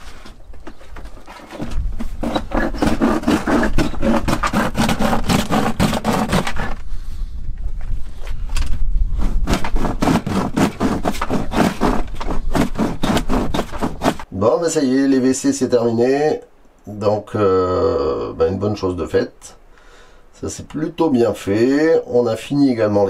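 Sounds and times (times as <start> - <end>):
hand saw cutting plastic: 1.2 - 6.8, 9.2 - 14.3.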